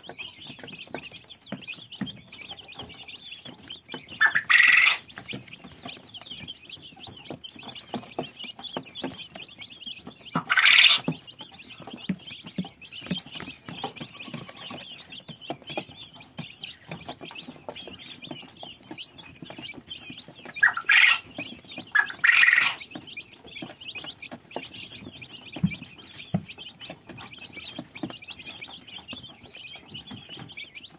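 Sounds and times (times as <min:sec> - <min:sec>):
chicks peeping: 0:00.0 - 0:30.9
louder longer chick calls: 0:04.2 - 0:05.0, 0:10.4 - 0:11.1, 0:20.6 - 0:21.3, 0:21.9 - 0:22.8.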